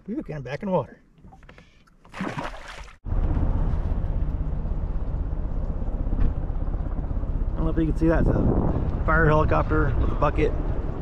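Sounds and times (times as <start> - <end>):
splash in water: 2.1 - 3.0
helicopter rotor beating: 3.1 - 11.0.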